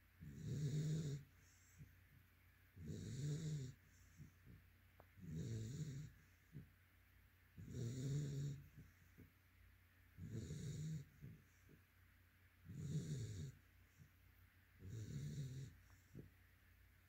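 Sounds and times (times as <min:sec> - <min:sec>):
puppy snoring: 0:00.1 - 0:01.9, 0:02.7 - 0:04.6, 0:05.2 - 0:06.8, 0:07.5 - 0:09.2, 0:10.1 - 0:11.8, 0:12.6 - 0:14.1, 0:14.7 - 0:16.3.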